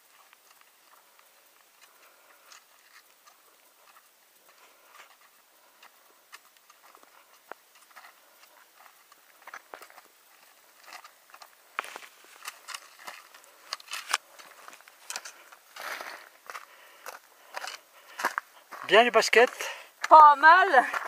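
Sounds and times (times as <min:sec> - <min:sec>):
footsteps crunching in snow: 0:00.0 - 0:21.0
trekking pole tips clicking: 0:11.8 - 0:15.6.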